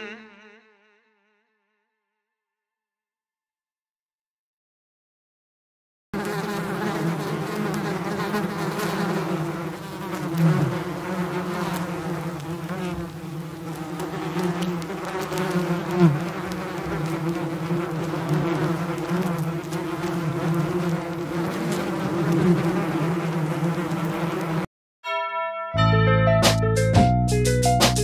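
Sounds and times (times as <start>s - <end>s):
insect buzzing: 0.0s - 2.1s, 6.2s - 24.7s.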